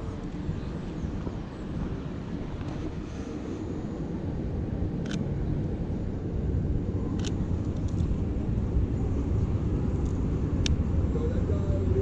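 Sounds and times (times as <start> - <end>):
city street traffic rumble: 0.0 - 12.0
camera shutter clicks: 5.0 - 5.2, 7.2 - 7.4.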